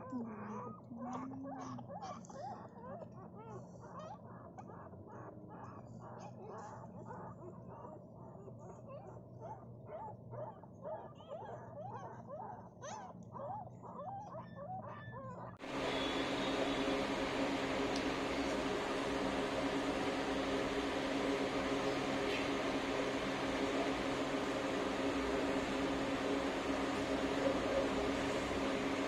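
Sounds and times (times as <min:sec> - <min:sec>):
puppies squeaking and whimpering: 0:00.2 - 0:15.6
loud steady hum: 0:15.6 - 0:29.0.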